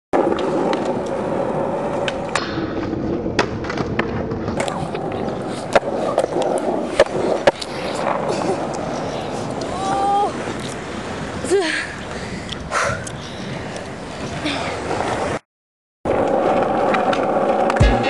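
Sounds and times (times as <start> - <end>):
skateboard clicks and knocks: 0.2 - 10.8, 16.1 - 18.0
skateboard wheels rumbling on pavement: 0.2 - 15.4, 16.1 - 18.0.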